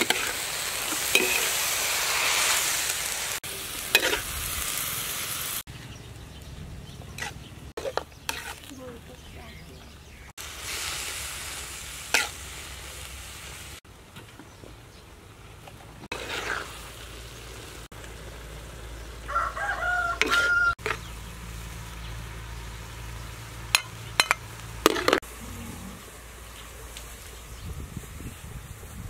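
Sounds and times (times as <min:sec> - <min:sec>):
rooster crowing: 0:19.2 - 0:20.8.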